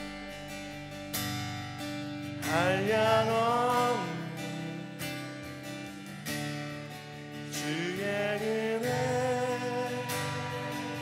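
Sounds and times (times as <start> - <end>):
person singing: 2.4 - 5.3, 7.5 - 11.0
live worship band music: 7.6 - 11.0
electric bass playing: 9.1 - 11.0.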